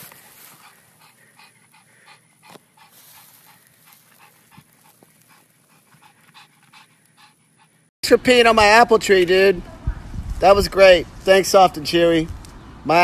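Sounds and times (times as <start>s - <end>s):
dog panting: 0.1s - 7.9s.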